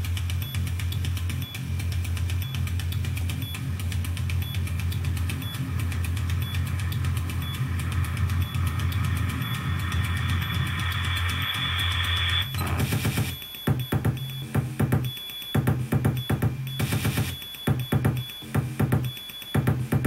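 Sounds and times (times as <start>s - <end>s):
low bass hum: 0.0s - 13.3s
glitchy electronic music: 0.0s - 20.0s.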